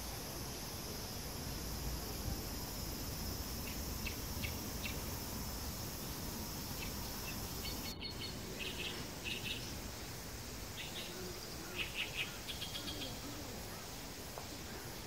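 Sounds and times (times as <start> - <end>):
high-pitched insect drone: 0.2 - 9.8
bird chirps: 6.8 - 9.7.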